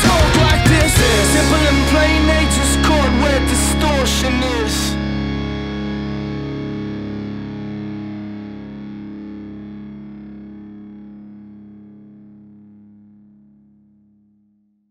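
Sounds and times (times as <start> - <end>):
drums: 0.0 - 4.8
distorted electric guitar chord: 0.0 - 13.6.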